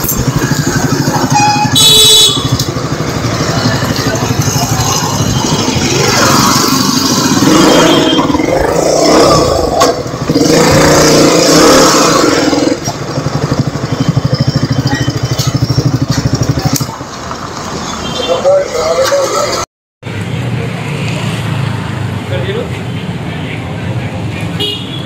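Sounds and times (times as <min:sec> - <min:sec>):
motorcycle engine running: 0:00.0 - 0:17.6.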